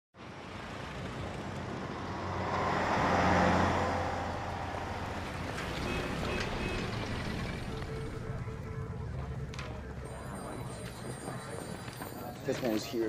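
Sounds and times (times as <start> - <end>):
street traffic: 0.2 - 13.0
vehicle engine passing by: 0.3 - 9.6.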